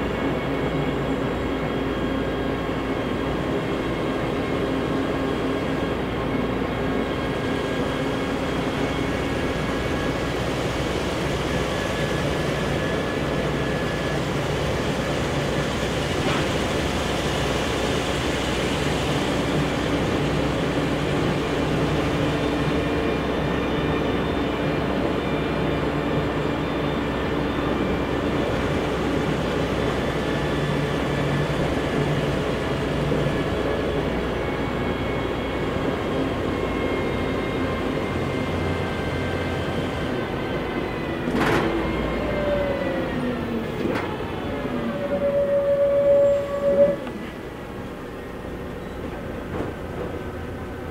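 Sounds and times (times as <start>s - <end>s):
bus engine: 0.0s - 50.9s.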